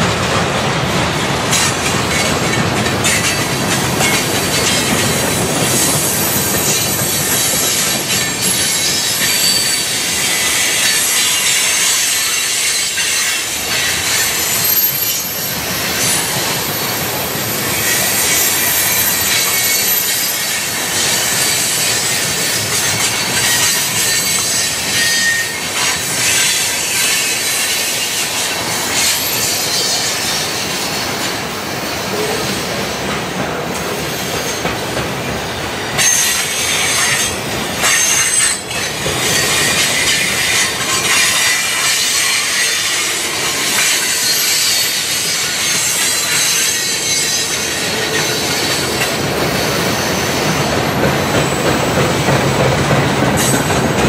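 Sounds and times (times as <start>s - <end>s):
freight train wheels on rails: 0.0s - 54.0s
high-pitched wheel squeals: 5.8s - 30.6s, 36.0s - 49.0s.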